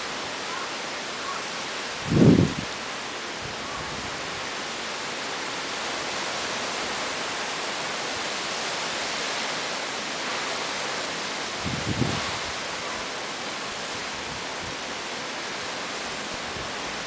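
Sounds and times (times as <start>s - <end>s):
heavy rain and wind: 0.0s - 17.0s
wind gust on microphone: 1.9s - 2.8s, 3.4s - 4.5s, 11.5s - 13.2s.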